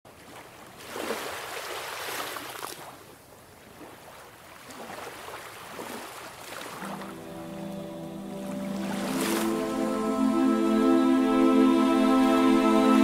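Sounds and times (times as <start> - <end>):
sea water washing: 4.7 - 13.0.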